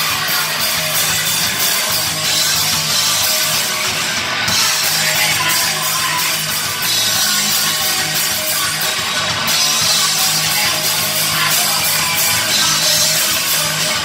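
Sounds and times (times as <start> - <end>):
drum kit: 0.0 - 14.0
electric guitars: 0.0 - 14.0.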